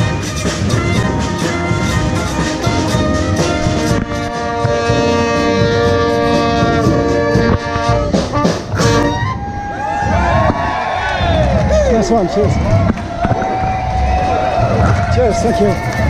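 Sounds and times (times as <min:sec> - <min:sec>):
brass band playing: 0:00.0 - 0:10.4
drum strokes: 0:00.0 - 0:11.5.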